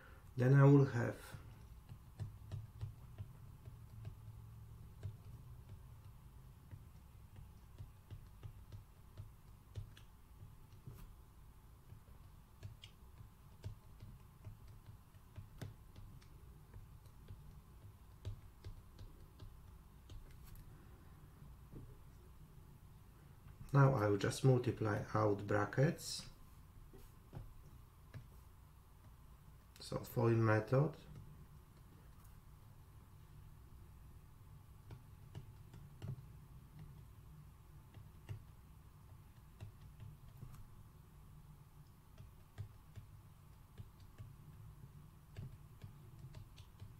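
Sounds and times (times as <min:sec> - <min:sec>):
low steady hum: 0:00.0 - 0:46.9
stylus tapping on tablet screen: 0:01.3 - 0:20.8, 0:26.9 - 0:29.8, 0:34.5 - 0:46.9.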